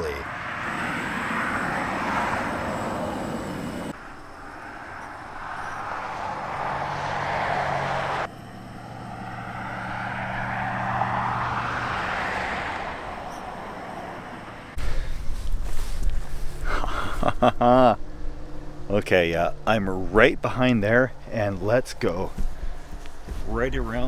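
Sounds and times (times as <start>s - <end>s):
vehicles passing on highway: 0.0s - 24.0s
low engine hum: 0.3s - 24.0s.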